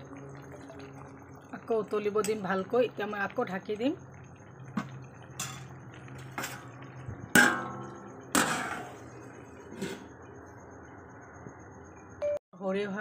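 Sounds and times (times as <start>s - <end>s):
metal plate clanking on pot: 4.7s - 10.1s.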